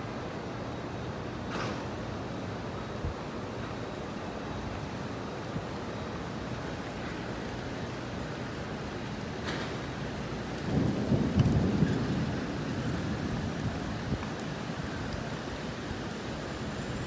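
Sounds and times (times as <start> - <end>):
steady rain falling: 0.0 - 17.0
thunder rumbling: 9.3 - 17.0.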